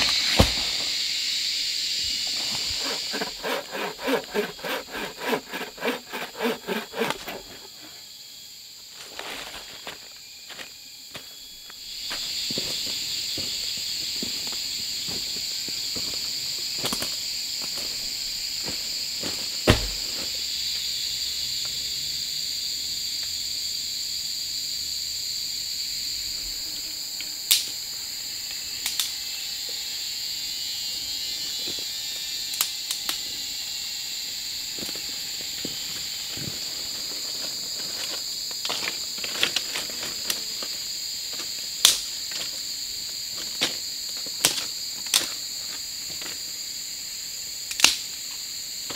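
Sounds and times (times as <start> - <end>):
insects chirping: 0.0 - 48.9
thump: 19.6 - 20.3.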